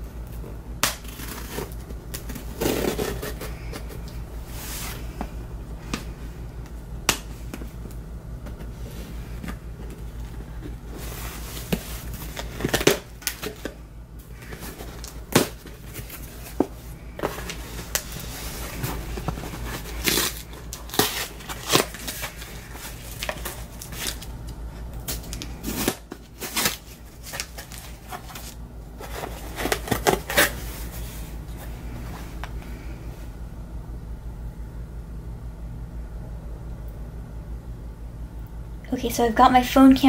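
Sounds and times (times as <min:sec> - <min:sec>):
low hum: 0:00.0 - 0:38.9
packaging crinkling and rustling: 0:00.2 - 0:05.2, 0:07.5 - 0:32.6
packaging tearing: 0:00.8 - 0:03.9, 0:11.0 - 0:13.8, 0:14.4 - 0:24.3, 0:25.0 - 0:31.0.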